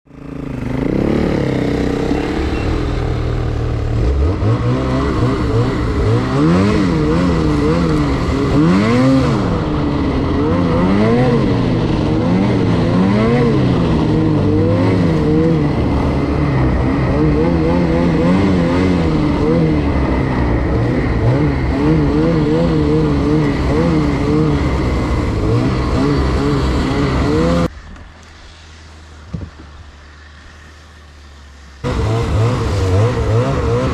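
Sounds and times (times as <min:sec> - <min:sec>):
wind: 0:00.0 - 0:33.9
snowmobile engine revving: 0:00.1 - 0:27.8, 0:28.5 - 0:33.9
track noise: 0:00.2 - 0:33.9.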